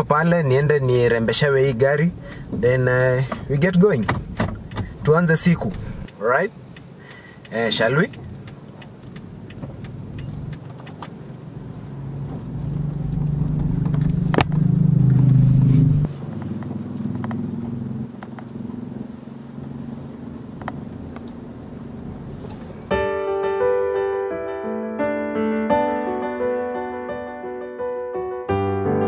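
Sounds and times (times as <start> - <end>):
car engine and road noise: 0.0 - 23.0
piano music: 22.9 - 29.0.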